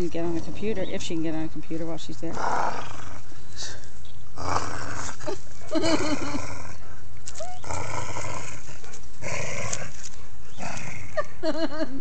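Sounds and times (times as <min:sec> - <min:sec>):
dogs play-growling: 0:02.3 - 0:11.4.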